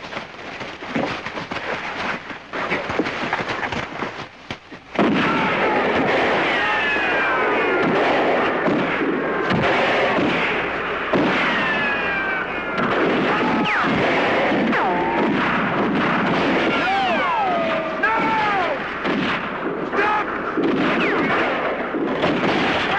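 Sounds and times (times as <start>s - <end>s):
rifle gunfire: 5.0s - 12.1s, 12.7s - 22.9s.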